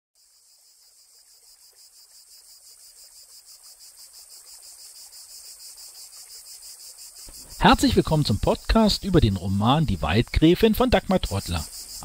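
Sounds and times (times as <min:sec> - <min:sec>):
rapid rhythmic chirping: 0:03.8 - 0:12.0.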